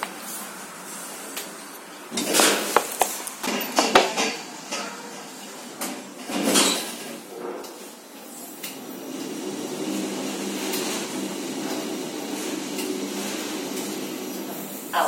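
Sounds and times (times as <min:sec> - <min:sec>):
sliding glass doors rattling: 0:08.8 - 0:14.8.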